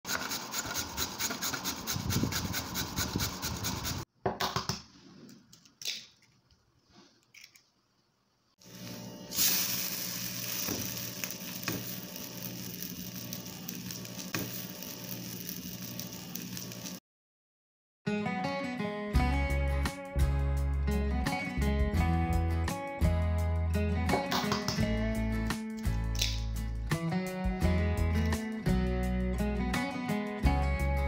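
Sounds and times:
carrot rasping on grater: 0.1s - 4.1s
batter sizzling in a pan: 8.6s - 17.0s.

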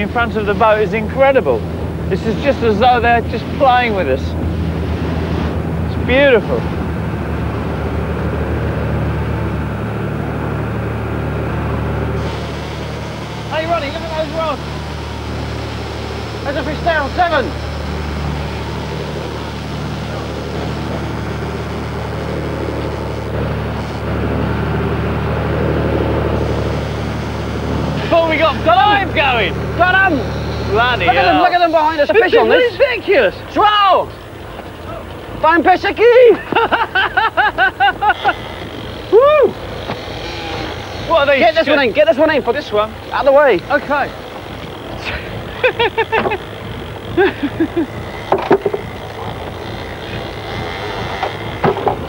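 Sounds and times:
boat engine droning: 0.0s - 52.0s
wind: 0.0s - 52.0s
crew shouting: 27.8s - 52.0s.

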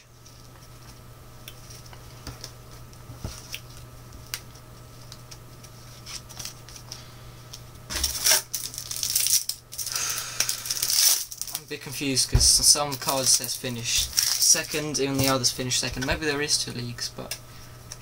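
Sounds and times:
steady low hum: 0.0s - 18.0s
foil packet rustling crinkle: 3.2s - 7.1s, 7.9s - 16.6s.

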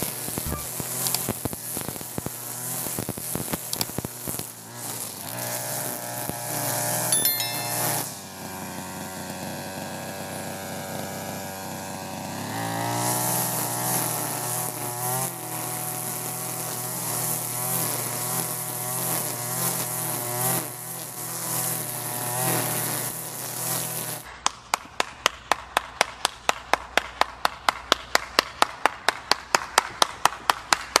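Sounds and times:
two-stroke brush cutter engine: 0.0s - 7.1s, 7.9s - 24.3s.

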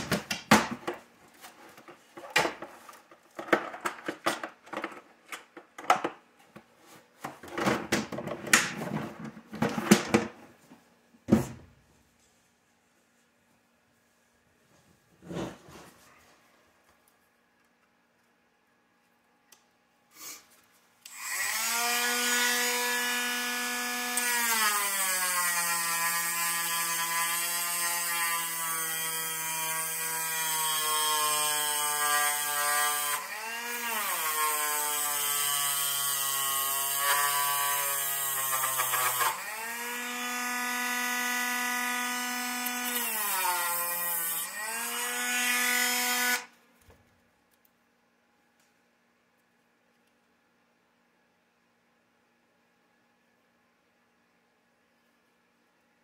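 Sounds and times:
rotary tool grinding plastic: 37.0s - 39.4s.

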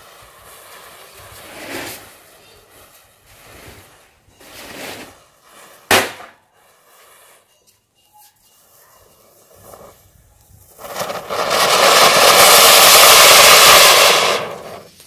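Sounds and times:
hissing flame bursts: 0.0s - 5.8s, 10.7s - 15.0s
firecracker bang: 5.8s - 6.5s, 10.8s - 14.9s.

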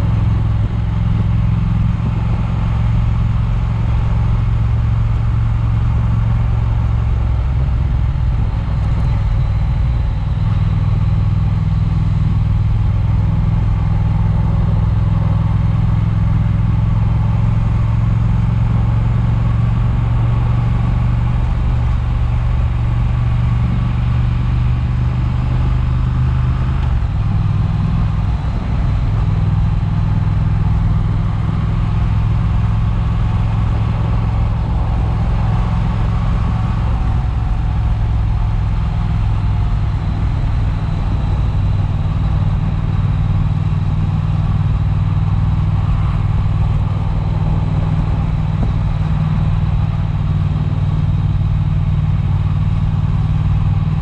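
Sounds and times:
motorcycle engine running: 0.0s - 54.0s
wind noise: 26.8s - 54.0s.

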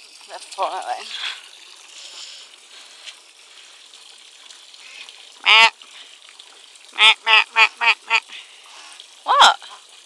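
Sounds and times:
duck quacking: 5.4s - 5.7s, 7.0s - 8.2s.

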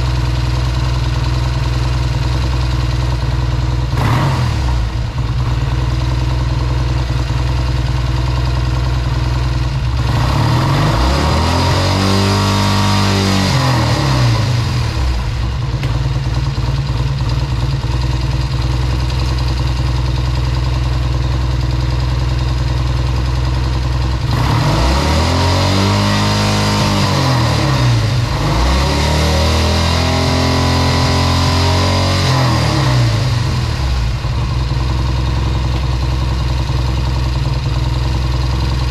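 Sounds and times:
motorcycle engine idling: 0.0s - 11.0s, 13.5s - 25.3s, 32.4s - 38.9s
engine revving: 3.9s - 5.4s, 9.8s - 15.7s, 24.2s - 35.9s.

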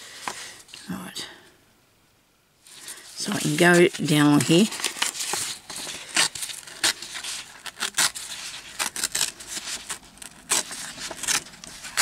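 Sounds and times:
paper tearing: 3.2s - 12.0s.

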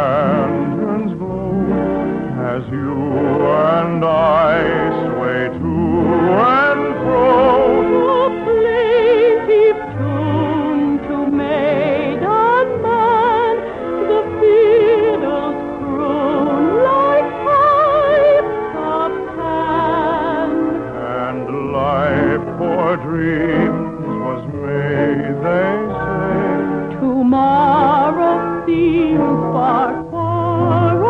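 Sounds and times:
operatic singing with vibrato: 0.0s - 31.0s
orchestra playing a waltz: 0.0s - 31.0s.

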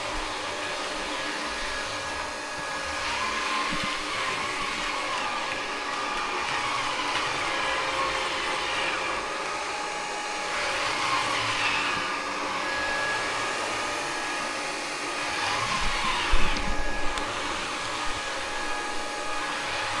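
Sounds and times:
wet-dry vacuum running: 0.0s - 20.0s.

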